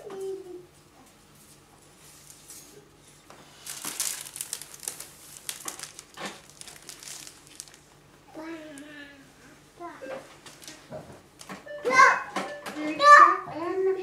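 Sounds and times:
crinkling and rustling: 0:01.4 - 0:08.1, 0:10.3 - 0:11.6.

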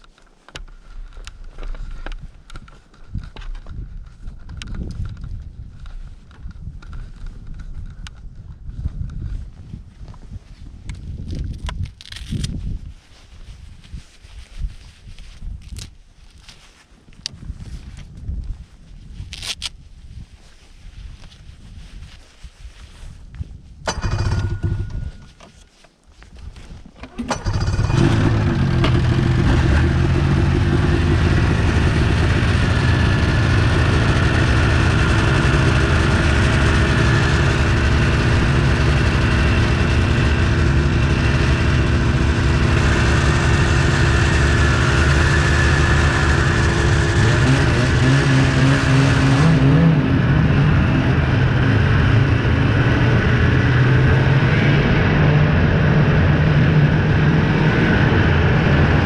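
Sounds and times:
snowmobile engine: 0:23.9 - 0:25.4, 0:27.1 - 0:59.0.

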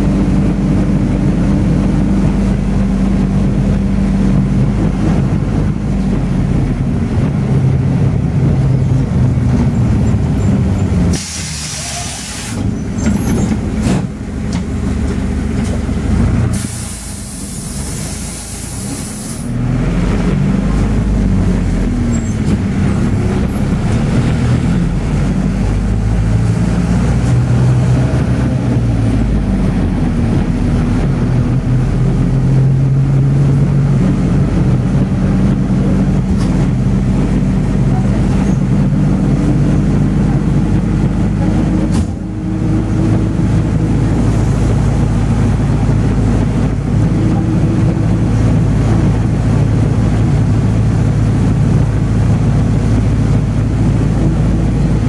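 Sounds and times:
minibus engine: 0:00.0 - 0:55.0
road noise: 0:00.0 - 0:55.0
high hiss: 0:11.1 - 0:12.6.

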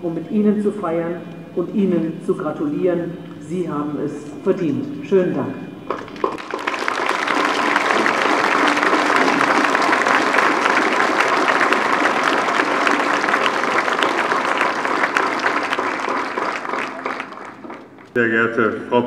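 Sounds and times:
audience applauding: 0:05.9 - 0:18.3.

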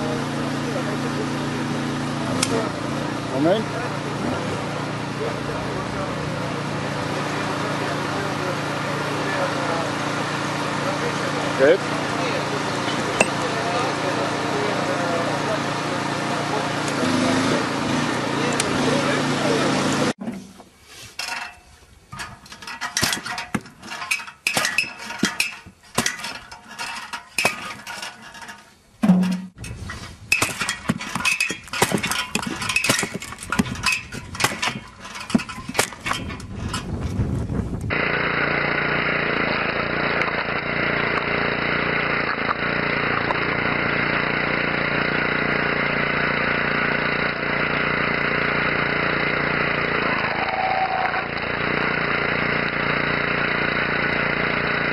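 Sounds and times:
log splitter machine drone: 0:00.0 - 0:20.7, 0:22.2 - 0:54.9
wood splitting knocks and cracks: 0:22.2 - 0:26.4, 0:30.4 - 0:37.0.

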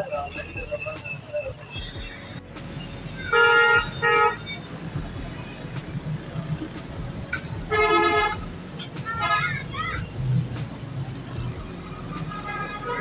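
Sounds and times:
vehicle horns honking: 0:00.0 - 0:06.1, 0:07.7 - 0:08.6, 0:12.3 - 0:13.0
low traffic rumble: 0:00.0 - 0:13.0.

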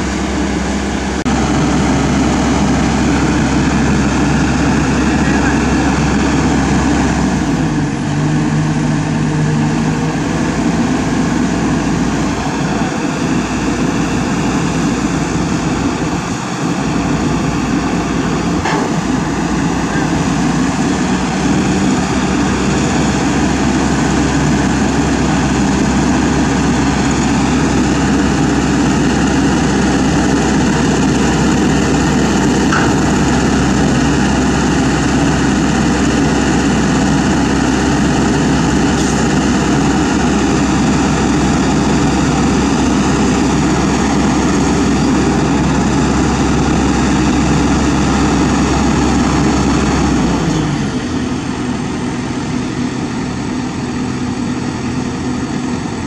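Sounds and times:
excavator diesel engine running: 0:00.0 - 0:56.0.

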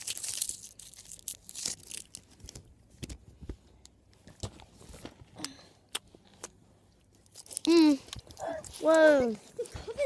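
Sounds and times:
plastic wrapper tearing and crinkling: 0:00.0 - 0:03.2, 0:07.1 - 0:09.0.

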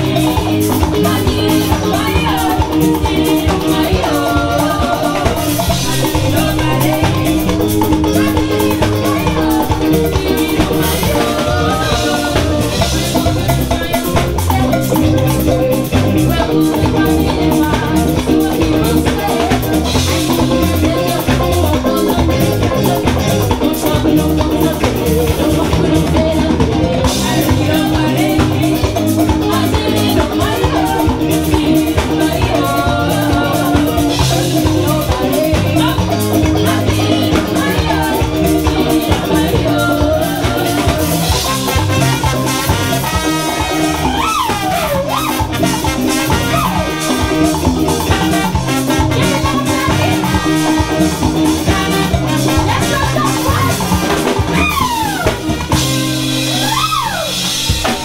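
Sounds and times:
live pop band playing: 0:00.0 - 0:58.0
person singing into microphone: 0:00.0 - 0:58.0
brass section: 0:40.4 - 0:58.0.

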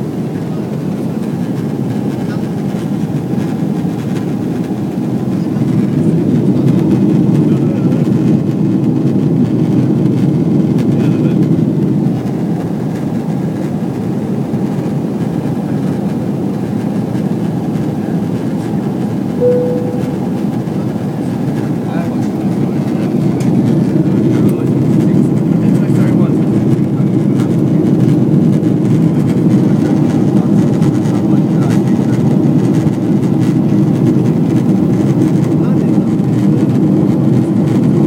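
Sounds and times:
airplane cabin rumble: 0:00.0 - 0:38.0
brief steady tone: 0:19.4 - 0:21.0.

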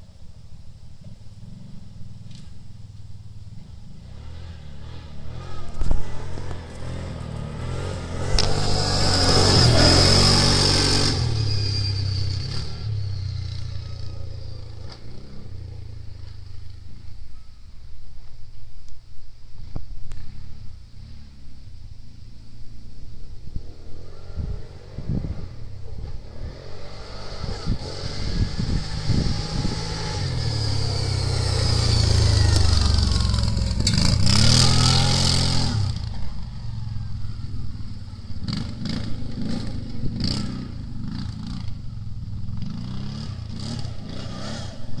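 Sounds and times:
quad engine revving: 0:04.0 - 0:16.0, 0:23.6 - 0:36.9, 0:38.4 - 0:45.0.

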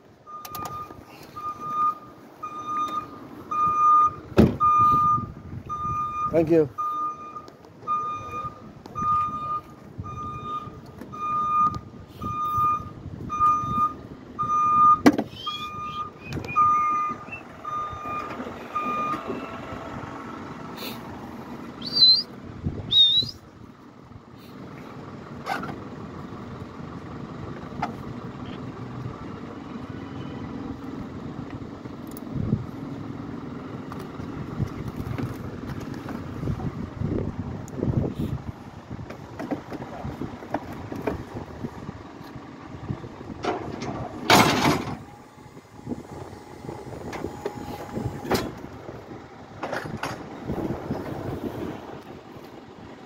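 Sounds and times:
steady outdoor hum: 0:00.0 - 0:53.0
reversing alarm beeping: 0:00.3 - 0:19.6.

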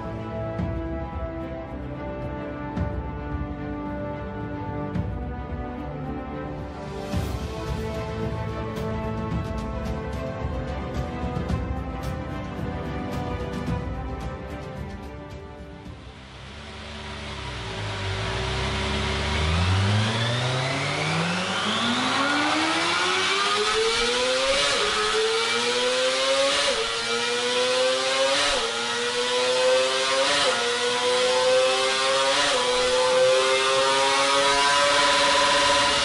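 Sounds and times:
motorcycle engine revving: 0:15.9 - 0:36.0.

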